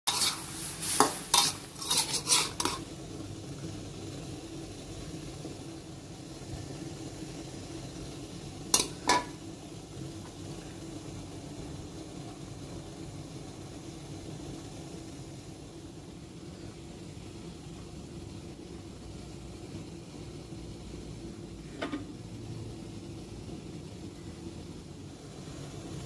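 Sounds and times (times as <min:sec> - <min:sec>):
metal spatula scraping a wok: 0:00.1 - 0:03.0, 0:08.7 - 0:09.4.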